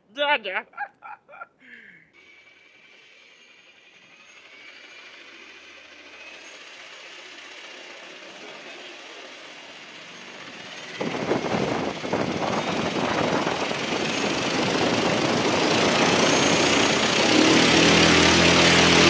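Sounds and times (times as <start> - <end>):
electric motor whine: 2.2 - 19.0
propeller air rush: 4.4 - 19.0.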